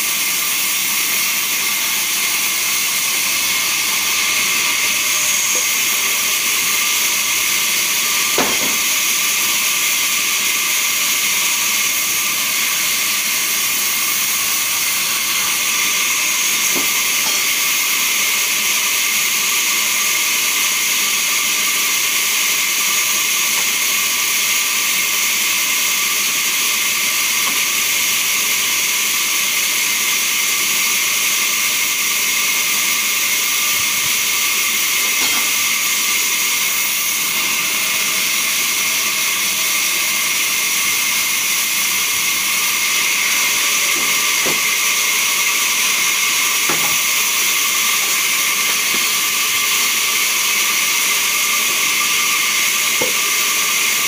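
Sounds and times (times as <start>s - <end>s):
band saw cutting log: 0.0s - 54.0s
knock: 8.4s - 8.8s.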